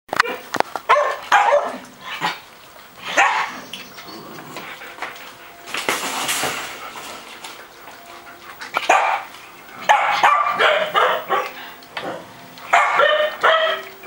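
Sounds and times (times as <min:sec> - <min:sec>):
small dog barking: 0:00.2 - 0:01.8, 0:03.1 - 0:03.5, 0:09.9 - 0:11.6, 0:12.7 - 0:13.9.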